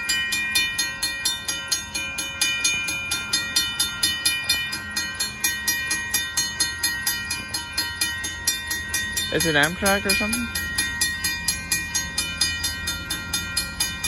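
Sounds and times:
railroad crossing bell ringing: 0.0s - 14.0s.

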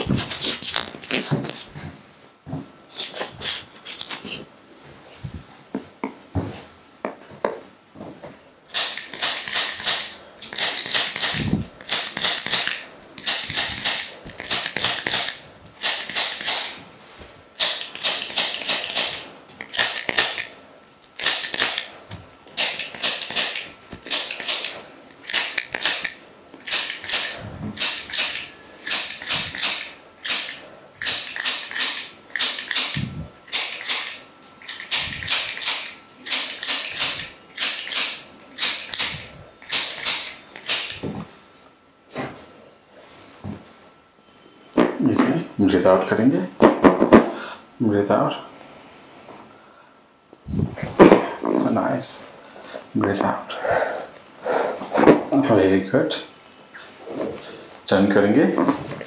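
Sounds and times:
adjusting instrument rapid clicks: 8.7s - 16.7s, 25.3s - 41.0s.

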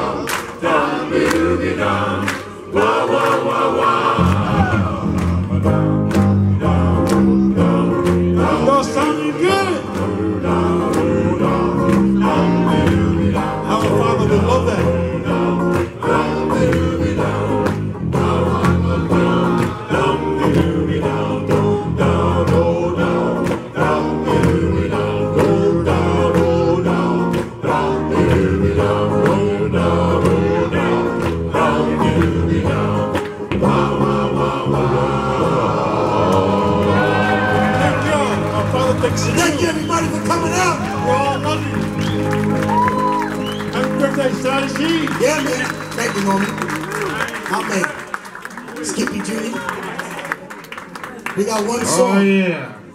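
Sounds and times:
men singing together: 0.0s - 42.7s
electric bass: 4.0s - 9.1s, 9.8s - 46.7s
electric guitar: 4.2s - 47.2s.

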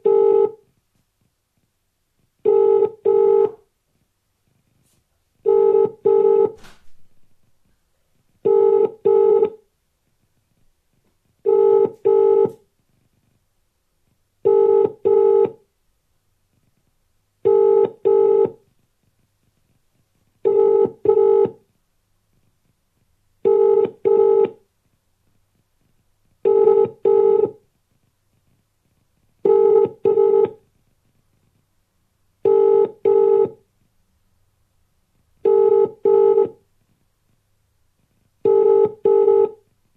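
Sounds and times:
telephone ringing tone: 0.0s - 0.6s, 2.5s - 3.6s, 5.5s - 6.6s, 8.5s - 9.6s, 11.5s - 12.6s, 14.4s - 15.6s, 17.4s - 18.6s, 20.5s - 21.6s, 23.5s - 24.6s, 26.5s - 27.6s, 29.4s - 30.6s, 32.4s - 33.6s, 35.4s - 36.6s, 38.4s - 39.6s.

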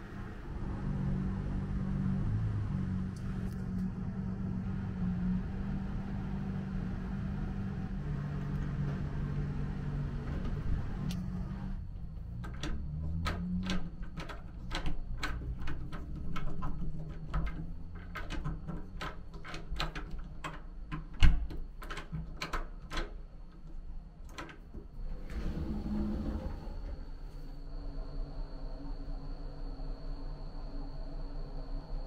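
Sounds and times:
door fittings clicking: 8.4s - 25.6s
faint high whine: 25.1s - 32.0s.

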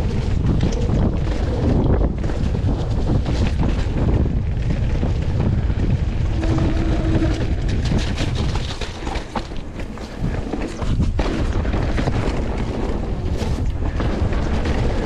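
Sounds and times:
bike rattling and clicking: 0.0s - 15.0s
bike trail rumble: 0.0s - 15.0s
wind buffeting microphone: 0.0s - 15.0s
short steady tone: 6.3s - 7.6s.

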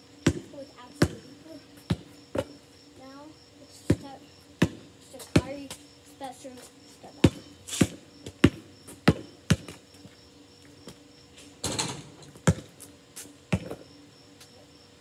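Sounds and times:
basketball bouncing: 0.2s - 2.6s, 3.9s - 5.8s, 7.2s - 9.8s, 11.7s - 12.8s, 13.5s - 13.8s.

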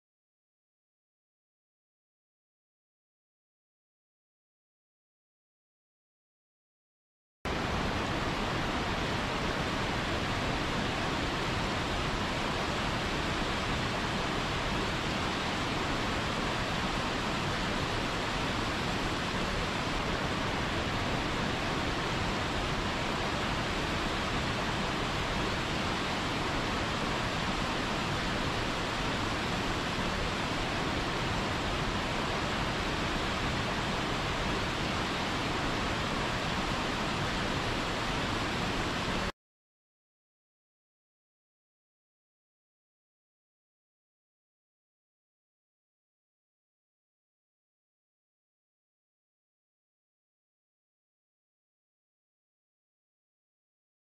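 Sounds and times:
waterfall rushing: 7.5s - 39.3s.

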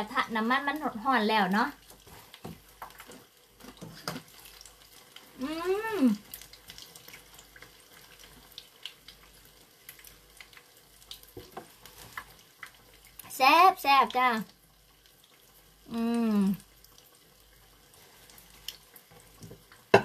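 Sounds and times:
food deep-frying in oil: 0.0s - 20.0s
person humming: 5.4s - 6.2s, 15.9s - 16.6s.

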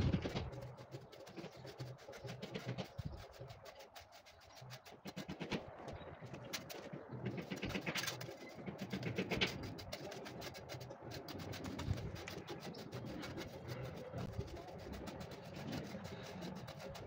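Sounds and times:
trowel scraping mortar: 6.4s - 17.0s.

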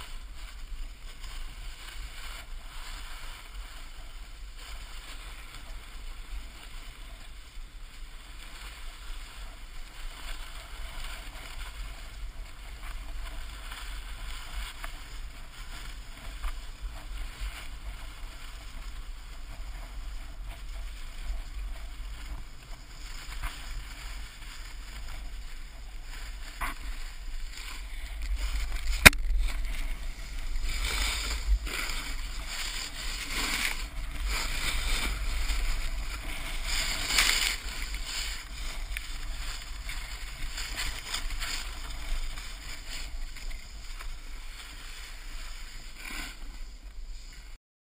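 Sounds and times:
snowboard scraping over snow: 0.0s - 47.6s.

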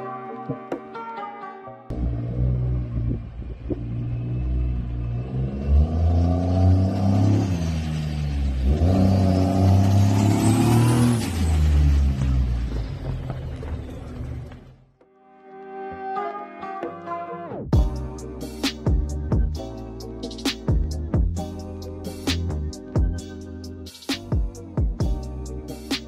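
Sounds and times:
pickup truck engine revving: 1.9s - 14.6s.

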